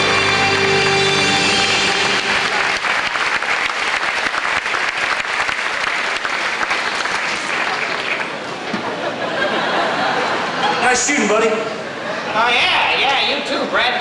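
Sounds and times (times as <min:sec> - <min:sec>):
large audience applauding: 0:00.0 - 0:08.6.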